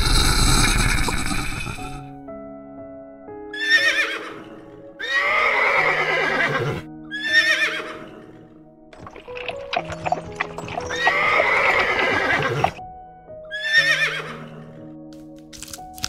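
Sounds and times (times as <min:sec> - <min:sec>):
soft background music: 0:00.0 - 0:16.0
horse whinnying: 0:03.6 - 0:08.4, 0:09.0 - 0:12.8, 0:13.5 - 0:14.5.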